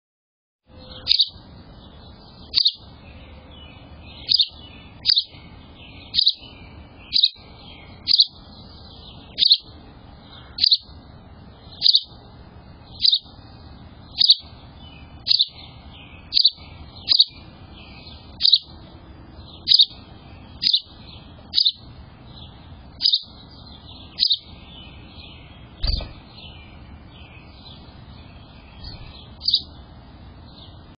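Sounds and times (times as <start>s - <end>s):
bird chirping sharply: 0.7s - 10.9s, 11.5s - 12.2s, 12.9s - 13.3s, 14.1s - 18.8s, 19.4s - 29.8s
low thump: 25.8s - 26.2s.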